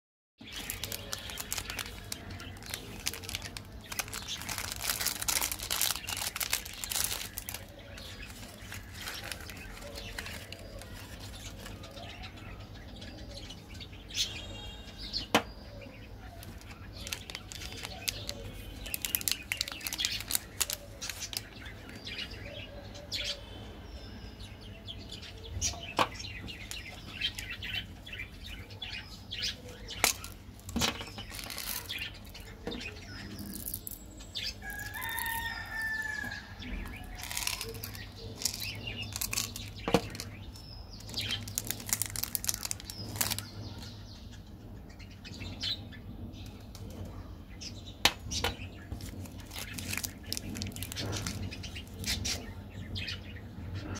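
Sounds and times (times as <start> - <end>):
plastic wrappers crinkling: 0.4 - 12.3, 16.3 - 22.2, 25.9 - 44.0, 48.9 - 52.4.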